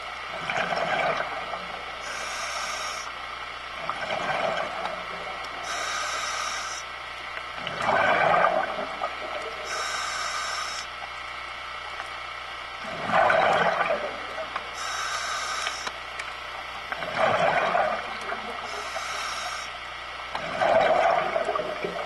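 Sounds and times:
bubbly gurgling exhalation: 0:00.4 - 0:01.8, 0:07.6 - 0:09.7, 0:12.8 - 0:14.5, 0:17.0 - 0:18.7, 0:20.4 - 0:22.0
hissing regulator inhalation: 0:02.0 - 0:03.1, 0:05.6 - 0:06.9, 0:09.6 - 0:10.9, 0:14.7 - 0:16.0, 0:18.6 - 0:19.8.

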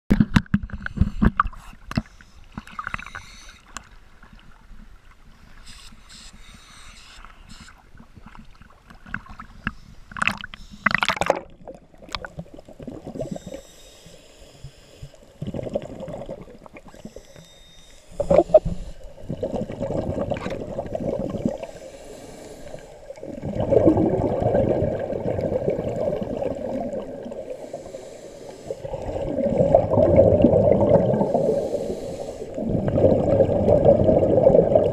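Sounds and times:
water sloshing and splashing: 0:07.9 - 0:13.4, 0:18.2 - 0:22.0, 0:22.7 - 0:28.0
underwater regulator bubbles rumbling: 0:15.4 - 0:17.0, 0:18.2 - 0:21.8, 0:23.2 - 0:27.7, 0:28.7 - 0:34.9.

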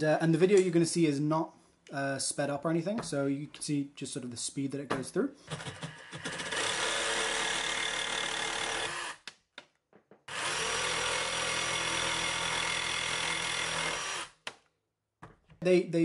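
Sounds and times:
jigsaw cutting metal rod: 0:05.5 - 0:09.3, 0:10.3 - 0:14.4.

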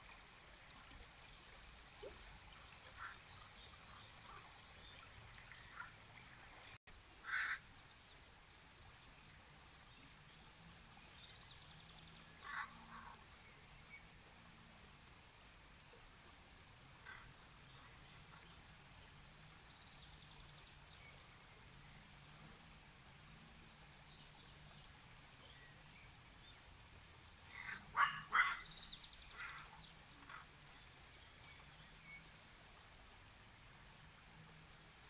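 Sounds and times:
river water running over stones: 0:00.0 - 0:35.0
harsh bird calls: 0:12.4 - 0:12.8, 0:27.5 - 0:30.5.

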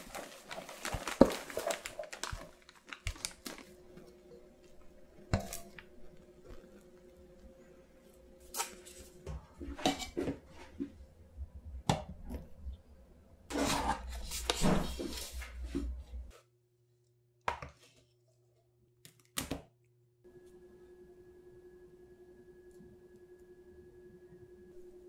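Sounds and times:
sugar syrup crackling: 0:00.0 - 0:07.5
faint hum: 0:20.1 - 0:25.0.

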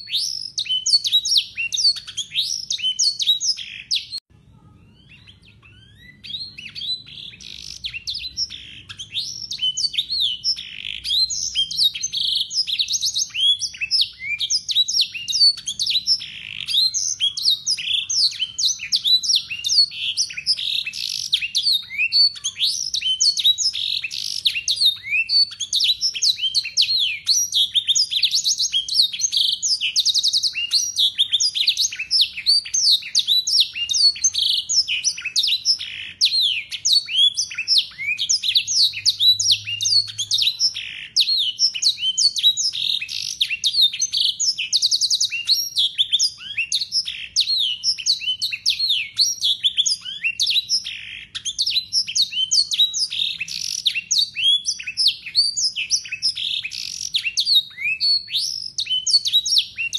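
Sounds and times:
canary singing: 0:00.0 - 0:59.9.

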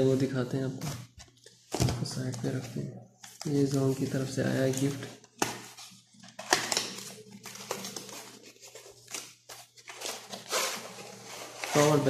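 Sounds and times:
cardboard scraping and rustling: 0:03.5 - 0:12.0.

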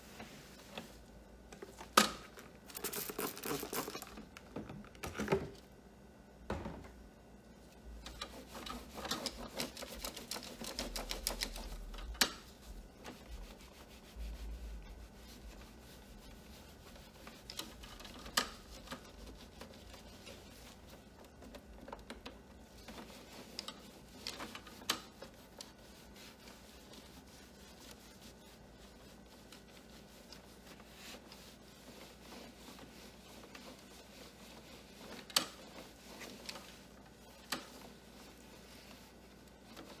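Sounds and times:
cloth wiping plastic casing: 0:07.7 - 0:40.0.

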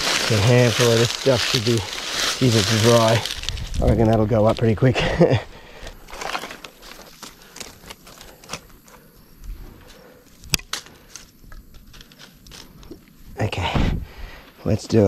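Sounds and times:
twigs snapping: 0:00.0 - 0:04.7, 0:05.8 - 0:13.1
dry leaves crackling and rustling: 0:00.0 - 0:04.9, 0:06.0 - 0:09.0, 0:10.6 - 0:12.8.

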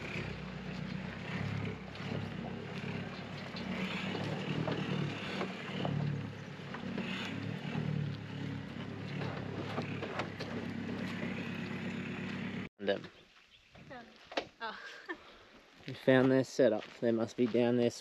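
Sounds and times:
knocks and rattles: 0:00.0 - 0:12.6
truck engine running: 0:00.0 - 0:12.7.

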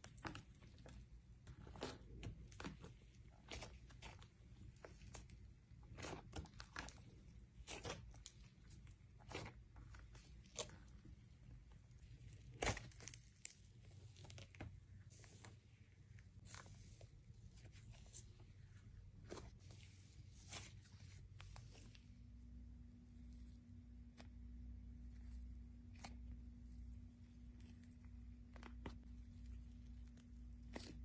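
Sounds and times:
slime crackling and popping: 0:03.4 - 0:14.7.

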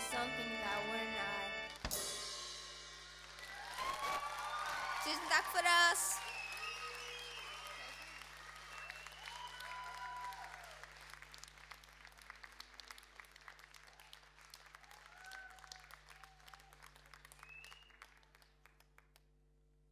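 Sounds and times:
audience applauding: 0:03.2 - 0:19.2
whoops: 0:03.4 - 0:10.9, 0:14.8 - 0:16.8.

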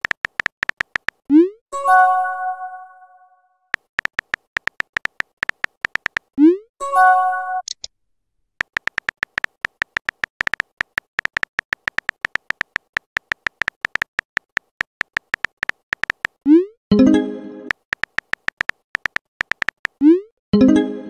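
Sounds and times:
phone keyboard typing clicks: 0:00.0 - 0:01.4, 0:03.7 - 0:06.4, 0:08.6 - 0:16.5, 0:17.7 - 0:20.1.

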